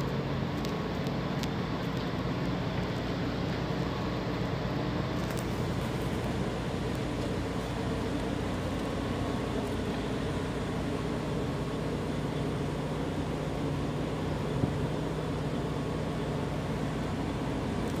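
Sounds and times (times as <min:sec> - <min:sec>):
engine drone: 0:00.0 - 0:18.0.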